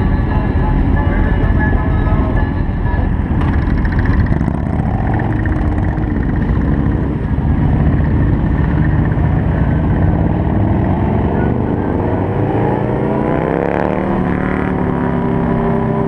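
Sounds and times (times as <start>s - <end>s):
motorcycle engines idling: 0.0s - 11.7s
motorcycles pulling away: 3.4s - 16.0s.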